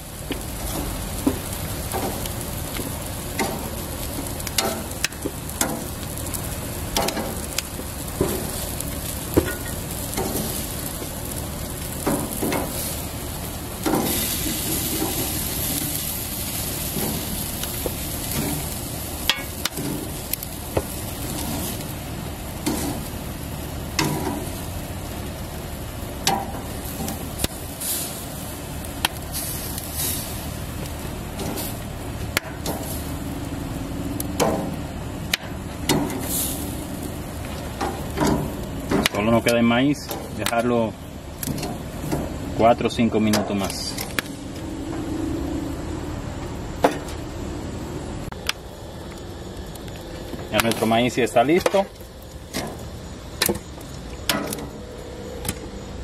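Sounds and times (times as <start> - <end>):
vegetables sizzling on a grill: 0.0 - 56.0
metal tongs clicking on grate: 7.0 - 7.7.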